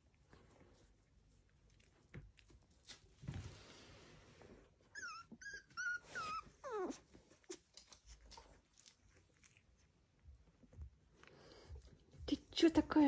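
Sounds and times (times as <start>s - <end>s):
soft rustling: 0.0s - 13.0s
puppy whimpering: 4.8s - 7.7s.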